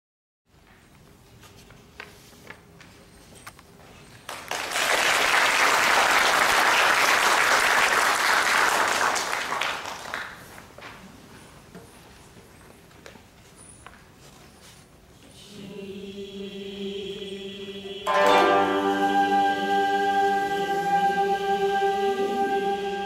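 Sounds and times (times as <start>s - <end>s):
audience applauding: 4.3s - 10.6s.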